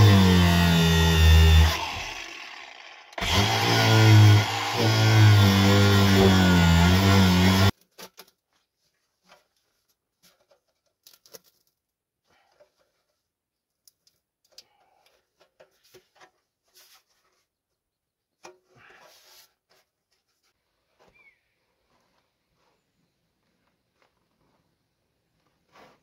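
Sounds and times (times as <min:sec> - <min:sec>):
scraping rustle: 0:15.6 - 0:17.5.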